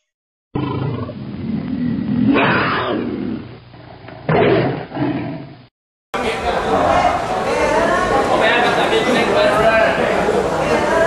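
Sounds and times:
tiger roaring: 0:00.6 - 0:05.6.

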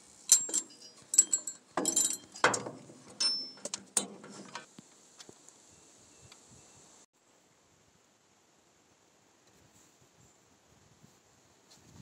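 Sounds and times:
metal tools clinking: 0:00.3 - 0:04.7.

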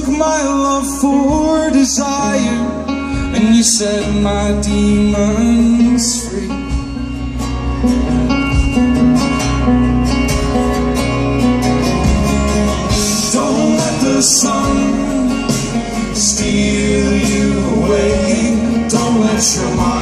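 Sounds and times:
picked banjo: 0:00.0 - 0:20.0
strummed acoustic guitar: 0:00.0 - 0:20.0.

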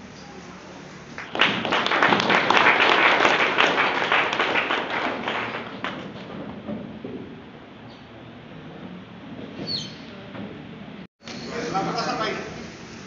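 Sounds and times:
audience applauding: 0:01.2 - 0:06.3.

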